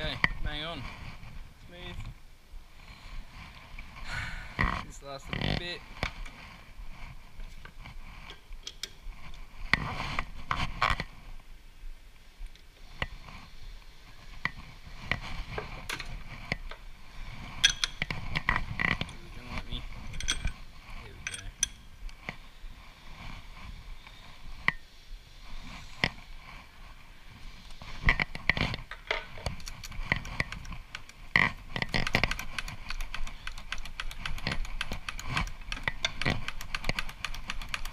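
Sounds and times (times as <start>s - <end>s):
metal tooling clicks and clinks: 20.1s - 20.6s, 21.2s - 21.8s.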